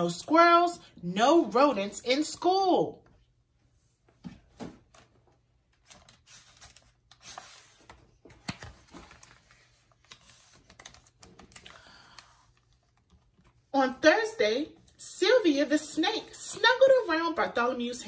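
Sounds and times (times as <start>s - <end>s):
book pages flipping: 4.2s - 13.7s.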